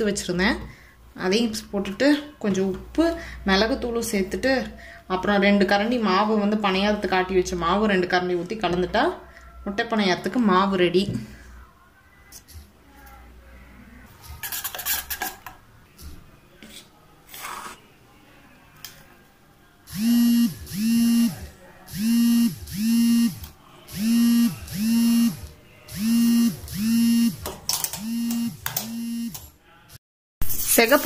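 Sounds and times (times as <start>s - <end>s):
spoon scraping steel bowl: 14.2s - 15.5s, 30.4s - 31.0s.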